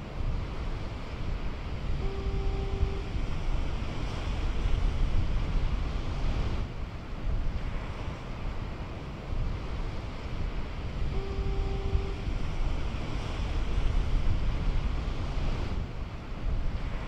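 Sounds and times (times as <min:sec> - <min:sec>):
ocean surf: 0:00.0 - 0:17.0
wind rumbling on microphone: 0:00.0 - 0:17.0
horn-like tone: 0:01.8 - 0:04.9, 0:11.0 - 0:14.7.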